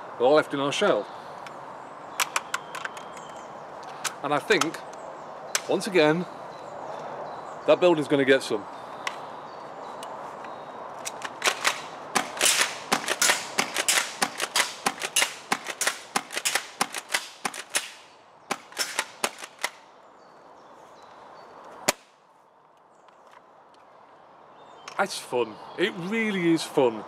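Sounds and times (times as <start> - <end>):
airsoft shotgun clacks: 11.0 - 19.8.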